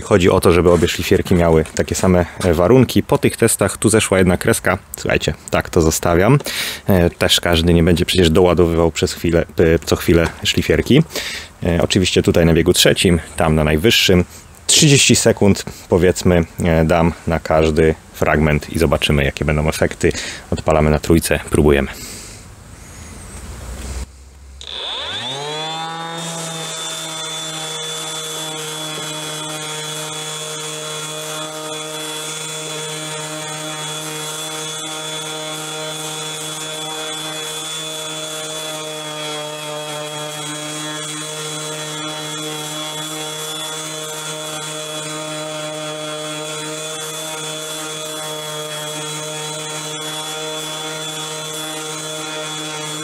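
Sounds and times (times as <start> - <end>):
orbital sander motor whining: 24.6 - 53.0
sandpaper scratching wood: 24.7 - 53.0.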